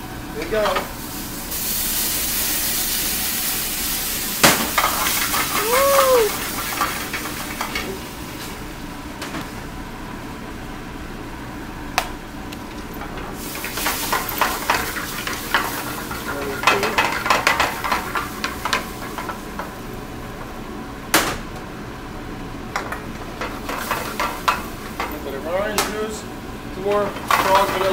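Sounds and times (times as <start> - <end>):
sauce sizzling in a skillet: 0.8 - 9.0, 13.0 - 20.4, 22.9 - 27.9
metal pan clatter and scraping: 13.1 - 19.4, 27.2 - 27.9.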